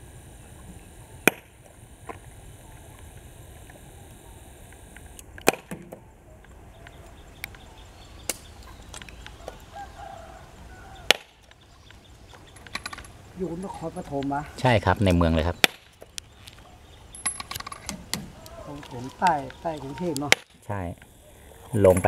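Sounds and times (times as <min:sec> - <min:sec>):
rooster crowing: 0:09.4 - 0:11.4, 0:18.2 - 0:20.2.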